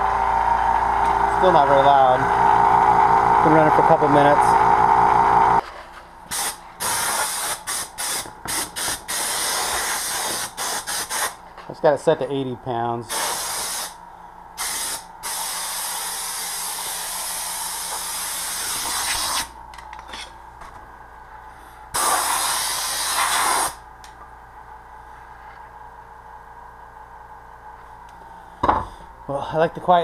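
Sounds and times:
air blow gun hissing: 6.3s - 11.4s, 13.1s - 14.0s, 14.6s - 19.5s, 22.0s - 23.8s.

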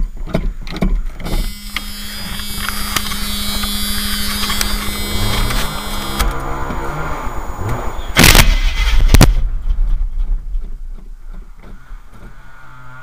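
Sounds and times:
starter motor cranking engine: 1.1s - 9.1s
engine starting and revving: 1.2s - 9.3s.

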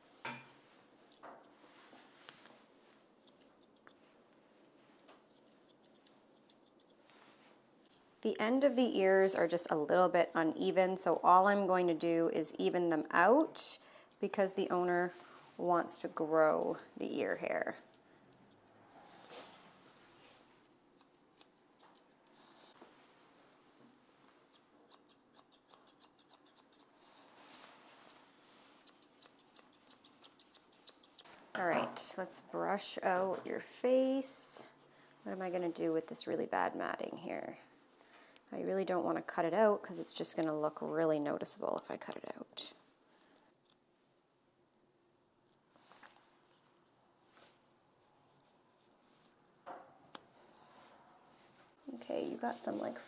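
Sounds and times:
grooming scissors snipping hair: 2.9s - 4.0s, 4.9s - 7.0s, 12.0s - 14.9s, 17.6s - 18.9s, 20.9s - 22.3s, 24.2s - 28.2s, 28.8s - 31.3s
scissors snipping: 5.0s - 7.0s, 24.5s - 26.9s, 28.8s - 31.2s.

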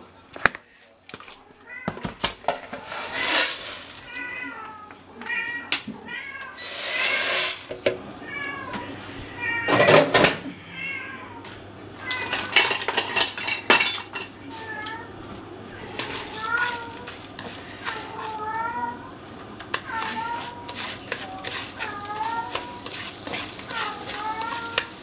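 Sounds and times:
rice poured into frying pan: 2.8s - 4.1s, 6.6s - 7.8s, 20.0s - 25.0s
cat meowing: 15.8s - 17.1s, 19.8s - 25.0s.

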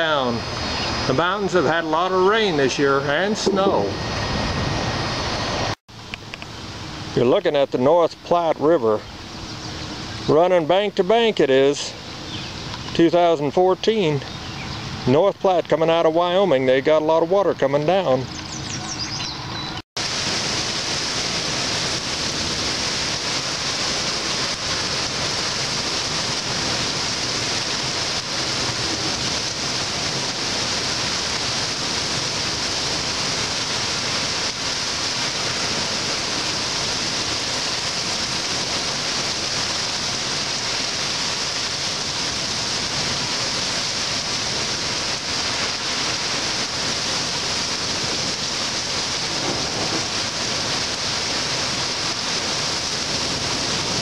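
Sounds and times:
heavy rain pouring: 0.0s - 8.0s, 20.0s - 54.0s.

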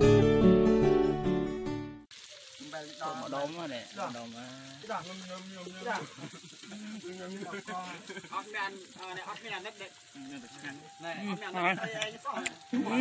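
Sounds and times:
acoustic guitar music: 0.0s - 2.1s
meat sizzling in a pot: 2.1s - 13.0s.

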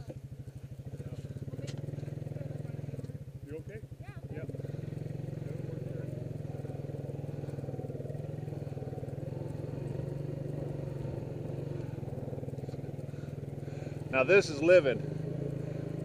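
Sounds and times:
small vehicle engine running: 0.0s - 16.0s.

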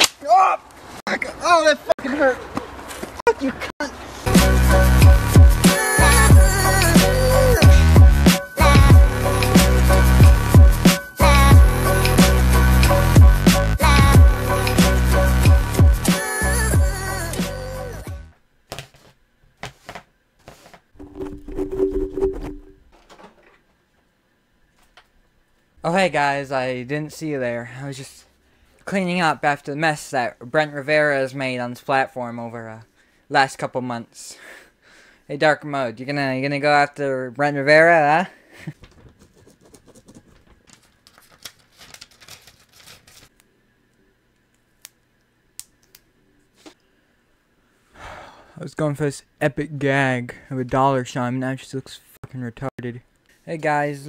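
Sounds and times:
music with a beat: 4.3s - 18.0s
paper rustling and crinkling: 18.7s - 20.9s, 38.8s - 43.4s.

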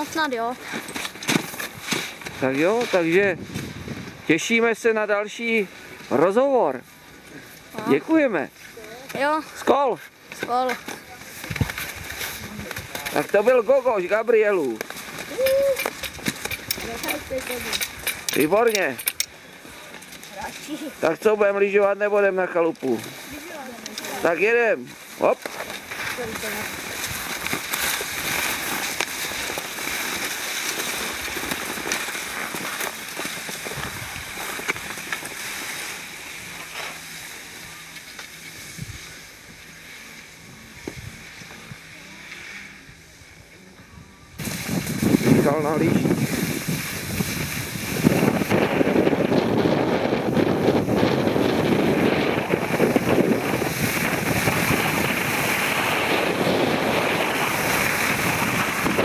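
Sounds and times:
skis scraping over snow: 0.0s - 43.7s, 44.3s - 59.0s
wind rushing over microphone: 1.7s - 4.6s, 11.4s - 14.1s, 43.9s - 59.0s.

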